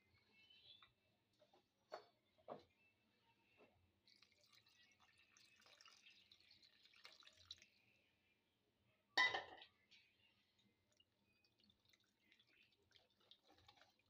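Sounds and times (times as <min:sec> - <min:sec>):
liquid trickling into a bowl: 0:04.0 - 0:08.2, 0:09.7 - 0:14.0.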